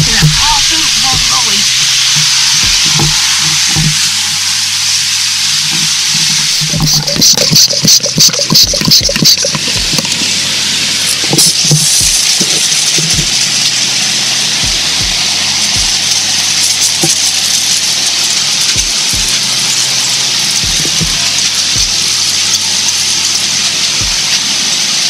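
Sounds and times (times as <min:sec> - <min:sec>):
dull low knocks: 0:00.0 - 0:04.4
pressure sprayer hissing: 0:00.0 - 0:25.0.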